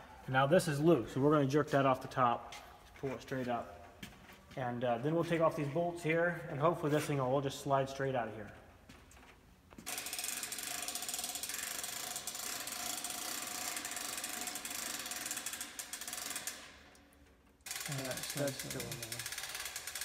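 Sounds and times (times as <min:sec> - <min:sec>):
rapid ratchet clicking: 0:09.8 - 0:20.0.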